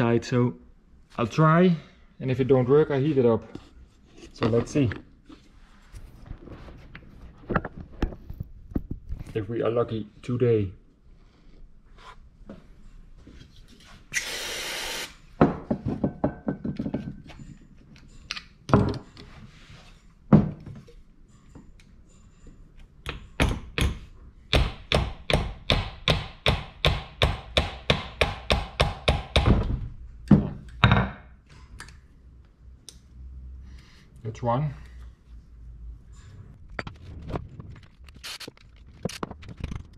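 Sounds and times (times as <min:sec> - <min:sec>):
hiss: 0:14.2 - 0:15.2.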